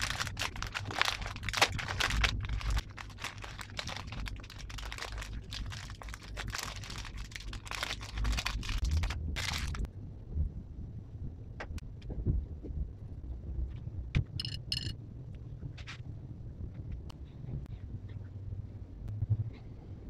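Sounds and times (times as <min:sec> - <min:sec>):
plastic wrapper crinkling: 0:00.0 - 0:09.9.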